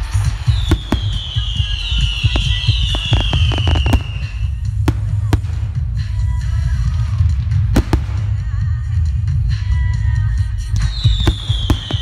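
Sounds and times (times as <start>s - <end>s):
fireworks exploding: 0.0s - 12.0s
music: 0.0s - 12.0s
low rumble: 1.8s - 10.7s.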